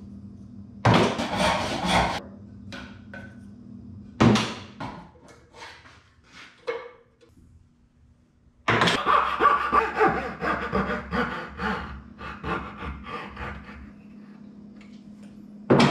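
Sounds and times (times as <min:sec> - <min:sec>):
hand saw cutting wood: 0:00.9 - 0:02.2.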